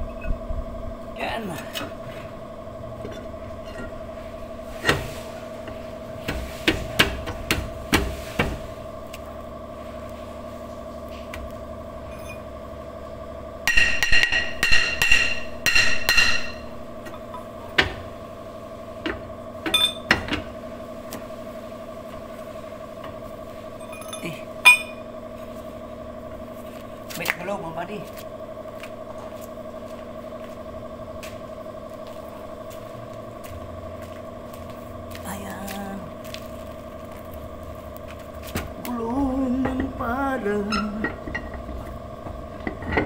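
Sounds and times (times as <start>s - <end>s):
steady hum: 0.0s - 43.0s
hammer striking metal drum: 13.7s - 16.6s.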